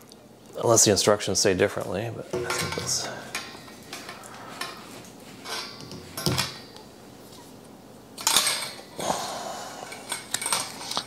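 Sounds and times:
wire shelf clinking on metal poles: 2.3 - 4.8, 5.4 - 6.7, 8.2 - 8.9.

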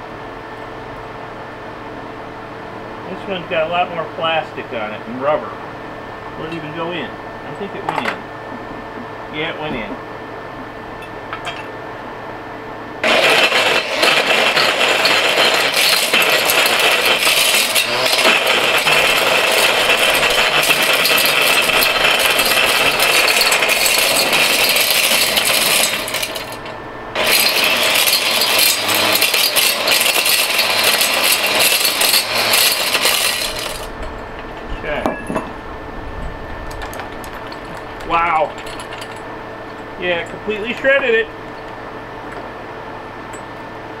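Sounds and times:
hammer mill crusher running: 13.0 - 44.0
pieces rattling inside chamber: 13.9 - 26.7, 27.4 - 34.0, 36.7 - 39.2.

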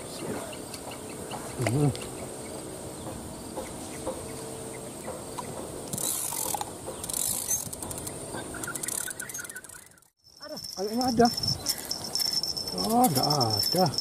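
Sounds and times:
fishing reel gears whirring: 5.8 - 14.0.

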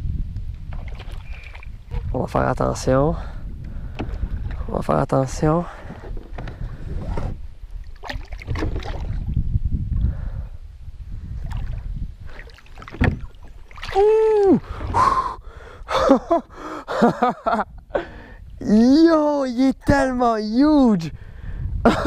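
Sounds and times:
water splashing: 0.7 - 2.1, 5.8 - 9.4, 11.4 - 15.3
person exclaiming: 13.9 - 15.4.

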